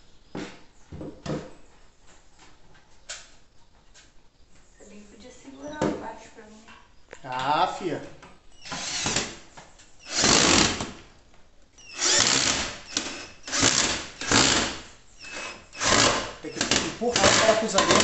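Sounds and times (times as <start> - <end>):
cordless drill driving screw: 8.6 - 9.4, 10.0 - 11.0, 11.8 - 18.0.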